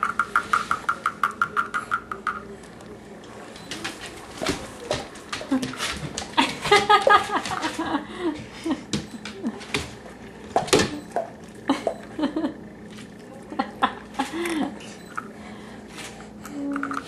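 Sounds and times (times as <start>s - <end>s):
dog claws clicking on tile: 0.0s - 2.6s.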